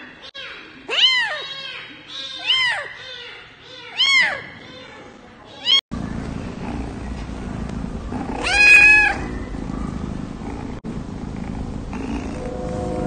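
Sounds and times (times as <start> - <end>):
cat meowing: 8.4 - 9.3
low rumble: 9.2 - 13.0.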